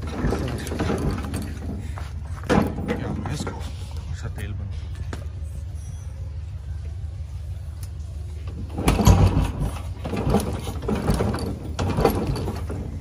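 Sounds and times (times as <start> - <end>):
motorcycle engine turning over: 8.4 - 13.0.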